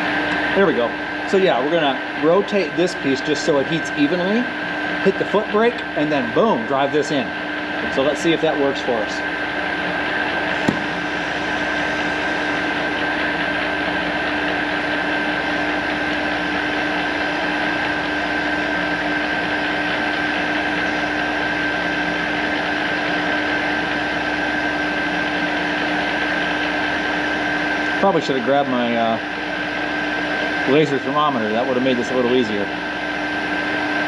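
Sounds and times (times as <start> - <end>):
lathe whining: 0.0 - 34.0
gas torch hissing: 8.0 - 29.0.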